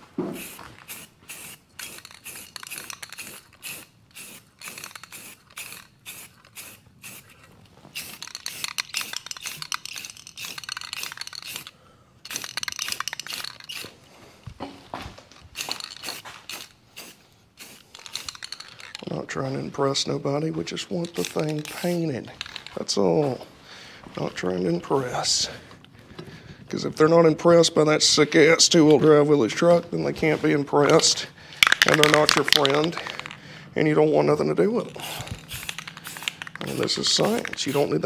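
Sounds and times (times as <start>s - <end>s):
spray paint can hissing: 0.2s - 14.0s, 15.5s - 19.1s, 21.0s - 22.8s, 31.6s - 33.4s, 34.8s - 38.0s.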